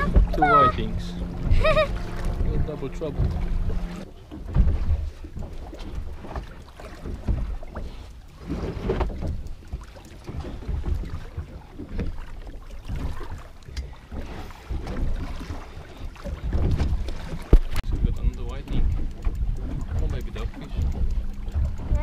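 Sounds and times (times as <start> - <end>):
wind buffeting microphone: 0.0 - 6.3, 14.2 - 22.0
water slapping boat hull: 0.0 - 22.0.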